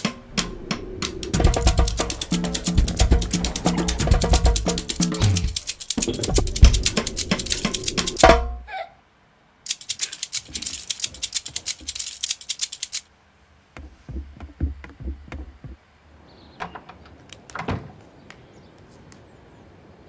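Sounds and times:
rapid light clicks: 0.0s - 8.3s, 9.7s - 13.1s
soft low thumps: 0.2s - 8.6s.

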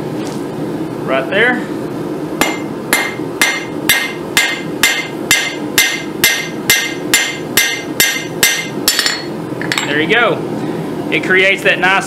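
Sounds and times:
hammer striking hot steel on anvil: 2.4s - 9.9s.

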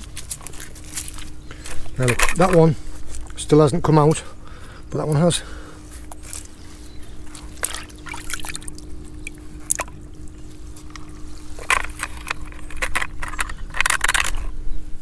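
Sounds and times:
water splashing in a bucket: 7.3s - 11.0s
sharp clicks and scrapes: 10.8s - 14.6s.

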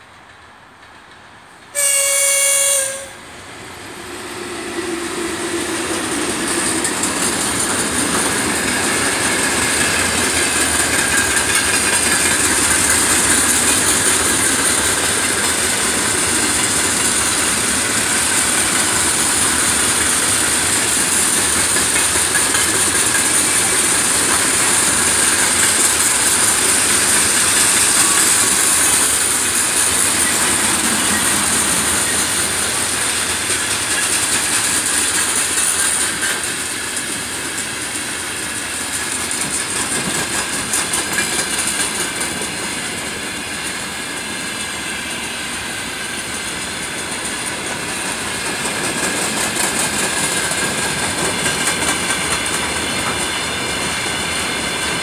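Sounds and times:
train wheels on rails: 0.0s - 55.0s
locomotive horn: 1.7s - 3.3s
high hiss: 3.2s - 39.8s.

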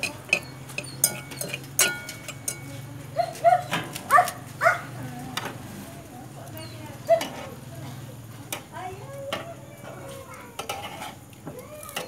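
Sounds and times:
metal spatula scraping frying pan: 0.0s - 2.8s, 7.2s - 7.6s, 10.5s - 11.3s.

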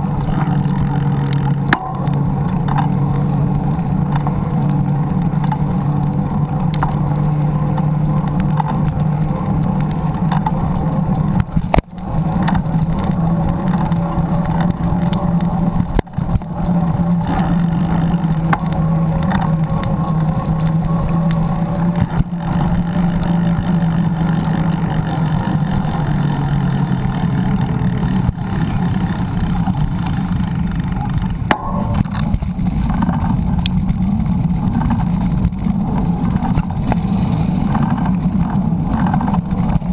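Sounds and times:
bicycle road noise: 0.0s - 39.9s
low hum: 0.0s - 39.9s
motor traffic: 0.0s - 39.9s
wind noise: 0.0s - 39.9s.

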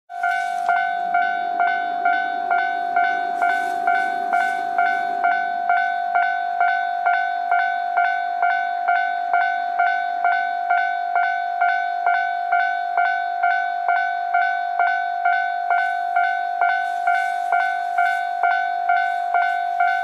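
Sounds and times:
electronic two-tone crossing bell: 0.1s - 20.0s.

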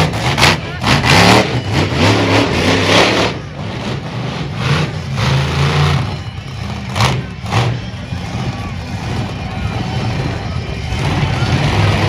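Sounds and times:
truck engine revving: 0.0s - 12.0s.

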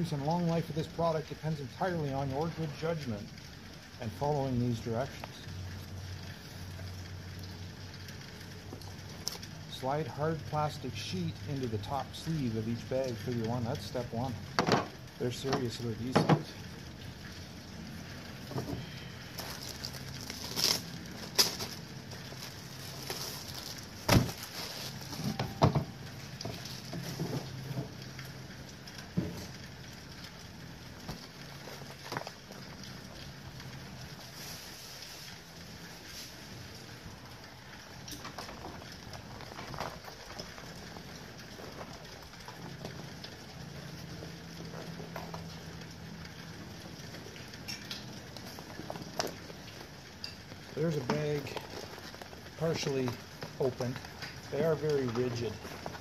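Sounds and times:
low steady hum: 0.0s - 56.0s
plastic packaging crinkling: 19.2s - 28.0s, 46.8s - 56.0s.

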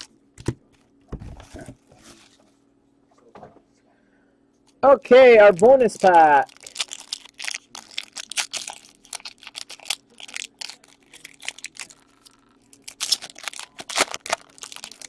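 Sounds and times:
foil wrapper tearing and crinkling: 5.4s - 15.0s.

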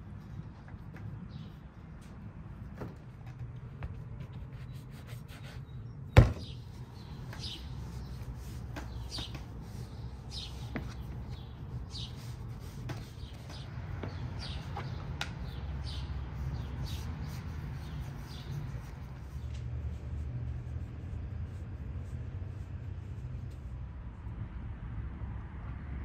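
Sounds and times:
small birds chirping: 0.2s - 2.2s, 3.7s - 20.2s
steady low rumble: 5.8s - 26.0s.

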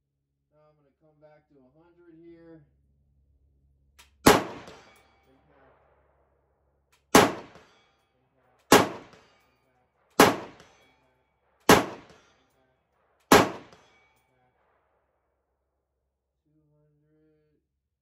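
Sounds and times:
rifle shots with echo: 4.2s - 6.3s, 7.0s - 15.2s.

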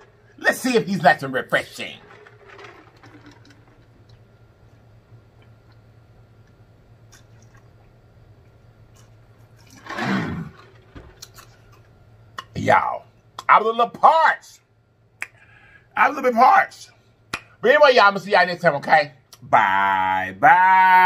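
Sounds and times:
man gulping water: 2.0s - 8.0s, 8.9s - 11.8s.

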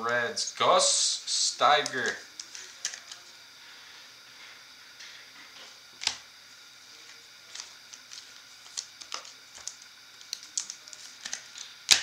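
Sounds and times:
cards clicking and rustling: 1.6s - 3.2s, 6.0s - 6.2s, 7.1s - 12.0s.

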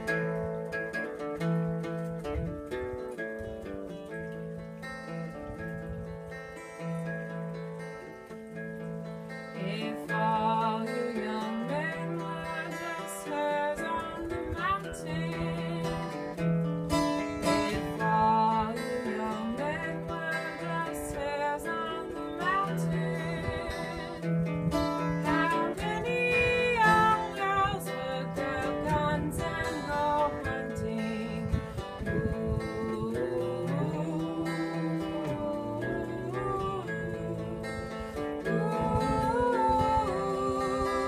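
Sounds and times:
acoustic guitar playing: 0.0s - 41.0s
person singing: 9.5s - 16.5s, 17.1s - 24.4s, 25.0s - 41.0s.

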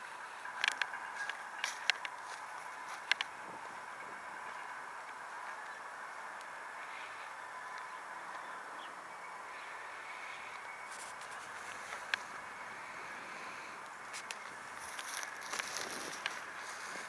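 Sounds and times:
background hiss: 0.0s - 17.0s
faint steady tone: 0.0s - 17.0s
light ticks: 3.0s - 3.3s.

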